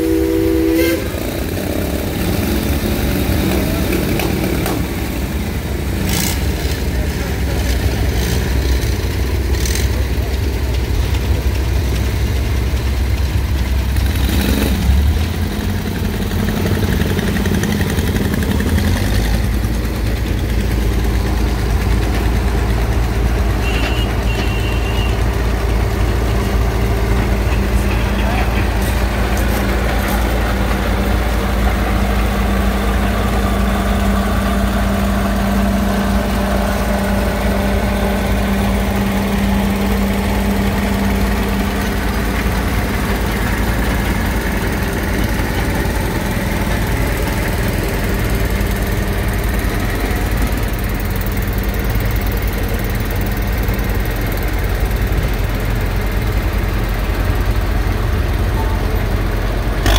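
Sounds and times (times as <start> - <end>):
tractor engine rumbling: 0.0 - 59.9.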